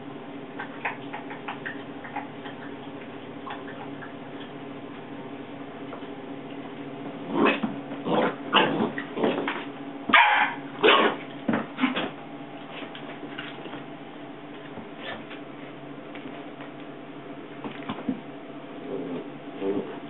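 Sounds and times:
dogs barking and yipping: 0:10.1 - 0:11.2.

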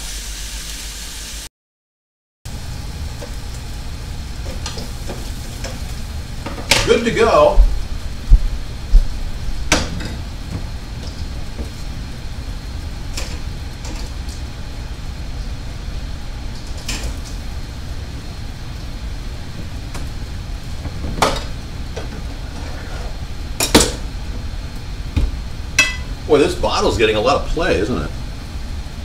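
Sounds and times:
steady low hum: 0:02.5 - 0:29.0
dishes clicking and knocking: 0:25.8 - 0:26.1.

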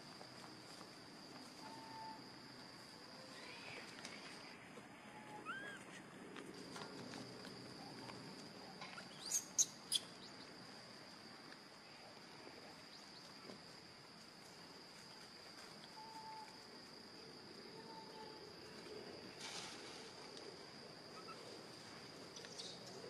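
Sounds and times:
high-pitched insect drone: 0:00.0 - 0:06.1.

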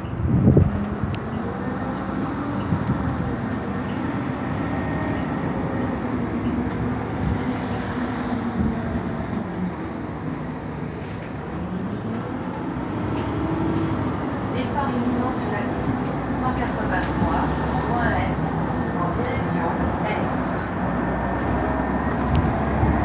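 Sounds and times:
bus engine drone: 0:00.0 - 0:23.0
road noise: 0:00.0 - 0:23.0.

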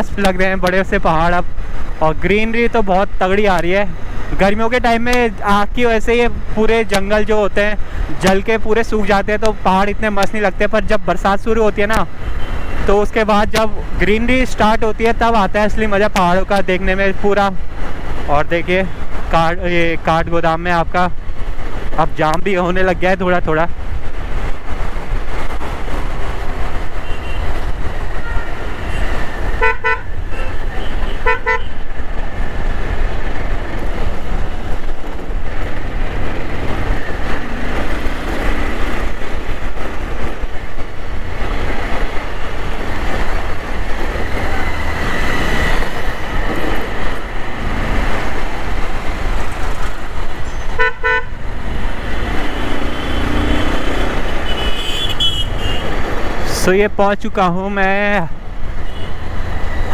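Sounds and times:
motorcycle engine and road rumble: 0:00.0 - 0:59.9
vehicle horn beeps: 0:50.8 - 0:51.3, 0:54.4 - 0:55.8.

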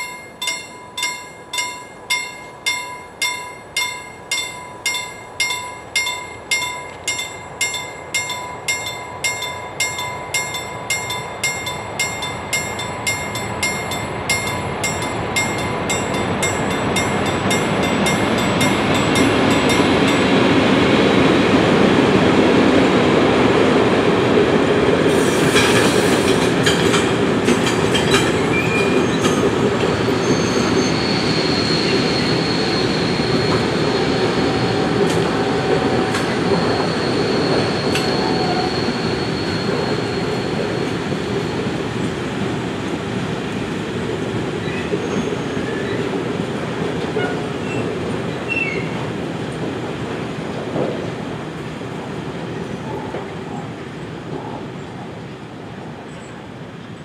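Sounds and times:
crossing warning bell ringing: 0:00.0 - 0:21.0
freight train rumbling: 0:00.0 - 0:57.0
train wheel squeal: 0:25.1 - 0:26.9, 0:28.0 - 0:42.2, 0:44.5 - 0:46.2, 0:47.1 - 0:49.0, 0:52.8 - 0:54.7
train wheel clatter and clanks: 0:25.1 - 0:31.1, 0:44.2 - 0:52.0, 0:52.6 - 0:53.7.

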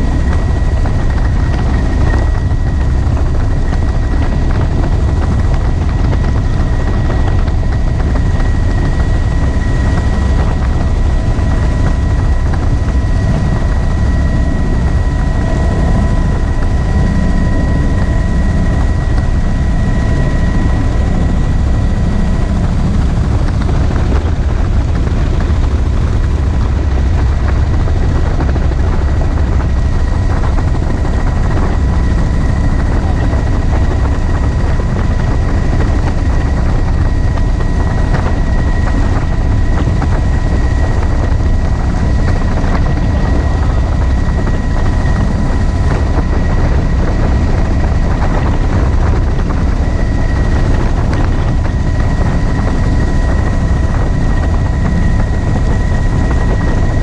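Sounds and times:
helicopter rotor and engine noise: 0:00.0 - 0:57.0.

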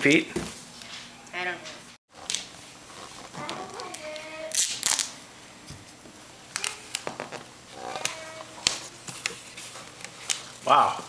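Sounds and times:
duct tape ripping off roll: 0:03.2 - 0:05.2.

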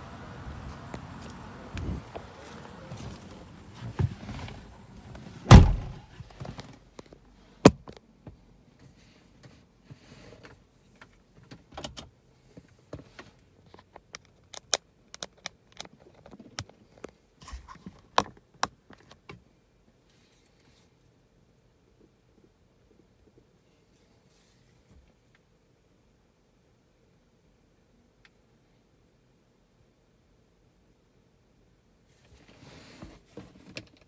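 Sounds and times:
heavy low thump: 0:05.5 - 0:06.0.

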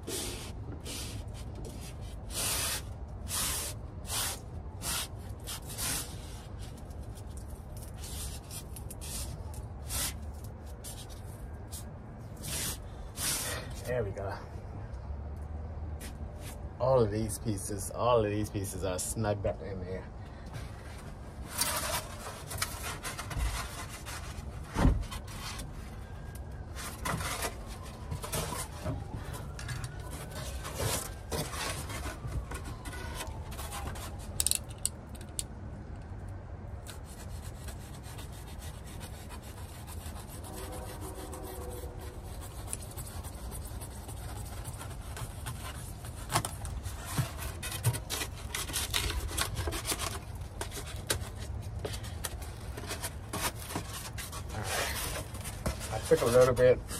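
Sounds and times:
foam board rubbing and scraping: 0:00.0 - 0:06.8, 0:12.4 - 0:13.7, 0:20.7 - 0:25.8, 0:37.0 - 0:56.9.

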